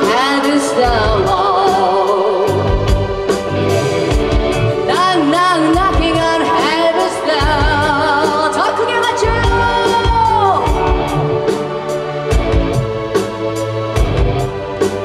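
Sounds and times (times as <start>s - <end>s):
woman singing with vibrato: 0.0s - 2.8s, 4.9s - 10.9s
rock band drums and bass: 0.0s - 15.0s.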